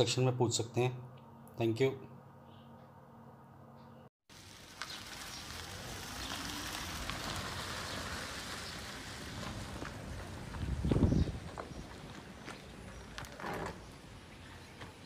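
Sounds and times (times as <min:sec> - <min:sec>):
tyres rolling over gravel: 0:04.3 - 0:15.0.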